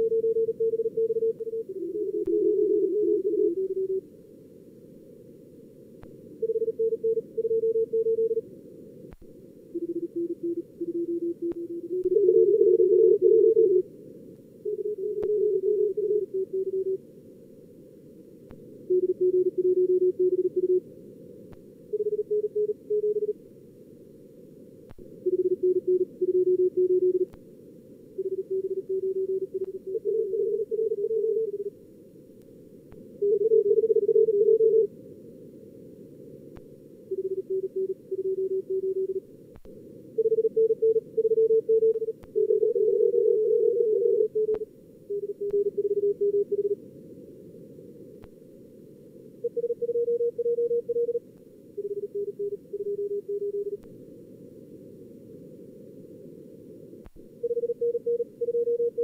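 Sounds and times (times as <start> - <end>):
receiver hiss: 0.0 - 59.0
morse code beeps: 6.4 - 8.4, 49.5 - 51.2, 57.4 - 59.0.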